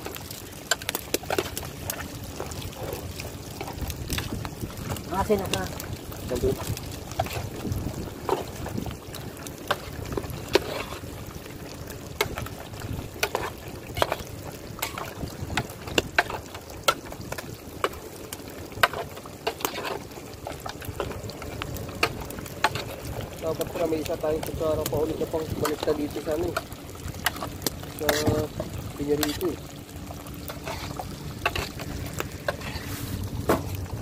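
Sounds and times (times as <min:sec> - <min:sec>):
wind noise on microphone: 0:03.5 - 0:11.5, 0:12.1 - 0:13.2, 0:13.9 - 0:16.4, 0:31.8 - 0:34.0
metal spoon scraping cooking pot: 0:13.2 - 0:15.1, 0:18.8 - 0:20.0, 0:27.2 - 0:28.4, 0:30.5 - 0:33.2.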